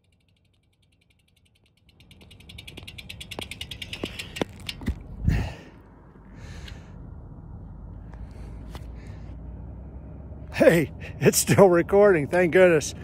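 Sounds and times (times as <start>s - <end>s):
bicycle freewheel ticking: 0.0s - 4.9s.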